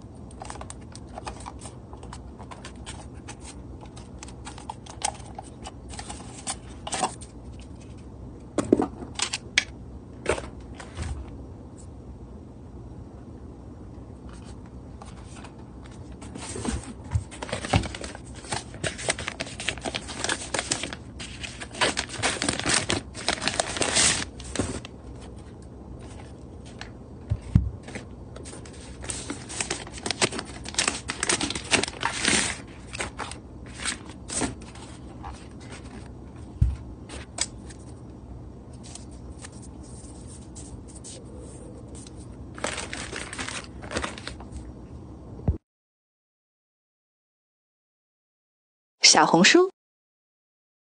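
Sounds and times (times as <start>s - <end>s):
packaging crinkling and rustling: 0.3s - 8.0s, 14.3s - 38.0s, 42.0s - 44.7s.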